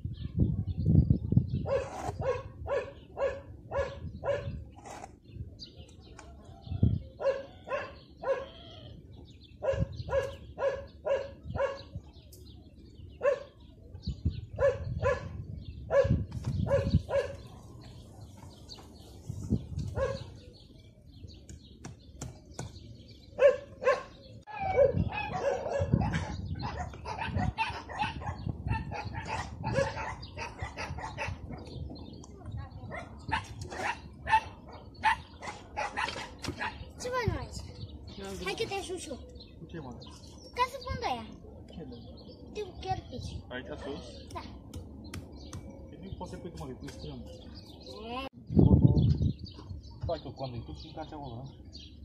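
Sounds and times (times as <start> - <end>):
dog barking: 1.6 - 4.6, 7.2 - 8.6, 9.6 - 11.9, 13.2 - 13.6, 14.6 - 17.8, 20.0 - 20.3, 23.4 - 31.4, 32.9 - 36.9.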